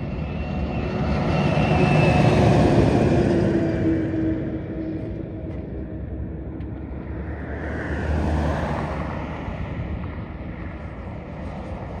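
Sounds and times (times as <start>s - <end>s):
road traffic rumble: 0.0s - 12.0s
vehicle passing close by: 7.1s - 9.9s.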